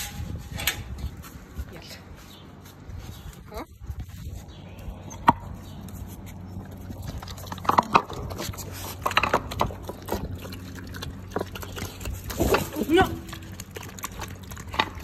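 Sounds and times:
puppies chewing wet food: 4.4s - 15.0s.

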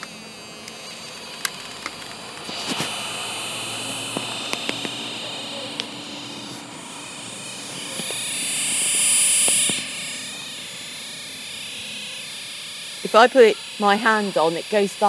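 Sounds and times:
sharp clicks: 0.0s - 3.1s, 4.0s - 10.1s
high-pitched speaker whine and hiss: 2.3s - 10.0s.

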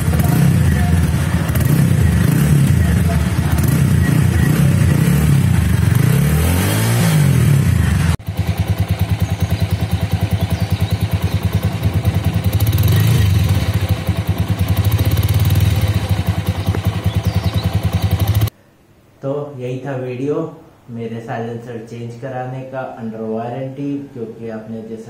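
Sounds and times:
motorcycle engine revving: 0.0s - 18.5s.

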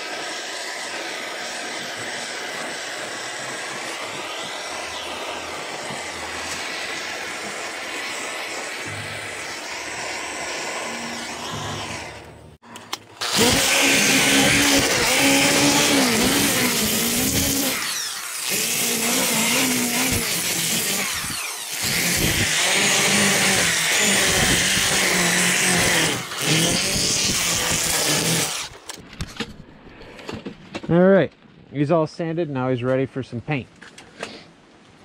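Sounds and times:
propane torch burning: 0.0s - 18.6s
drill spinning flap sander on wood: 0.0s - 28.9s.

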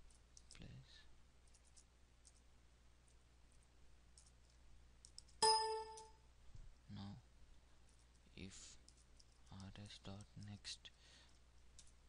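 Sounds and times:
short electronic chime: 5.4s - 6.1s.

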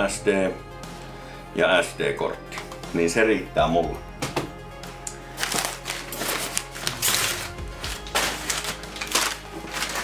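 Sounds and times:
background music: 0.0s - 10.0s
packing paper rustling: 5.4s - 10.0s.

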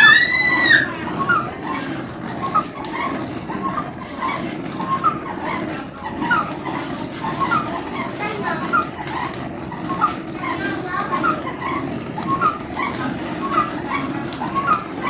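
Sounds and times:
loud pitched call: 0.0s - 1.4s
mill grinding with low rumble: 0.0s - 15.0s.

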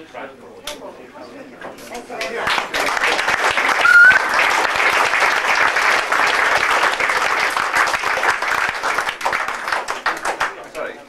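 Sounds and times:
crowd clapping: 2.2s - 10.9s
high rising whistle: 3.8s - 4.3s.

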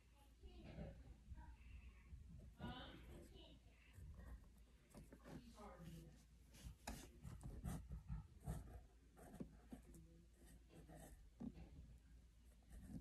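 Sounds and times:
pen scratching on paper: 5.0s - 11.8s, 12.5s - 13.0s.

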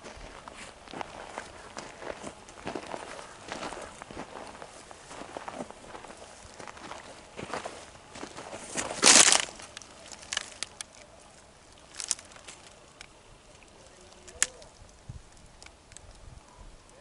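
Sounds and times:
footsteps crunching on gravel: 0.0s - 10.9s, 11.8s - 12.9s.

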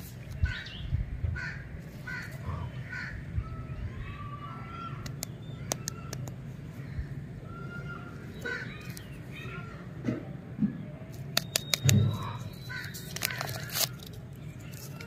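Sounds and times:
birds calling: 0.0s - 15.0s
wrapper clicks and knock: 11.2s - 12.2s, 12.8s - 15.0s.

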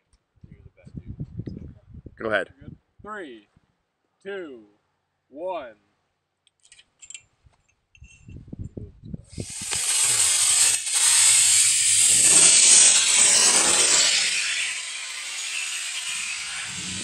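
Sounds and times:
rocket motor rushing hiss: 9.3s - 17.0s
rocket motor crackling pops: 9.4s - 13.7s.

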